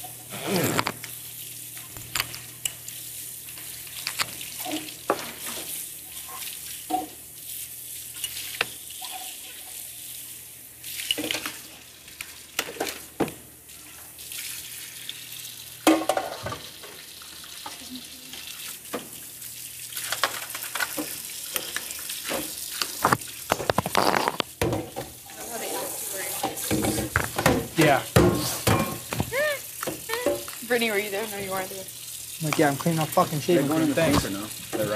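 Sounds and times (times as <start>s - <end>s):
dishes and utensils clinking: 28.2s - 29.3s
tap running into a sink: 33.7s - 34.9s.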